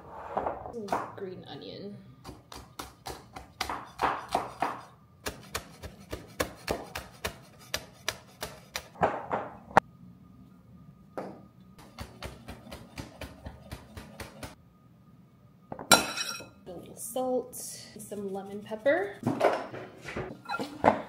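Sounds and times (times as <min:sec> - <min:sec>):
knife chopping on wooden board: 0:02.3 - 0:09.0, 0:11.8 - 0:14.6.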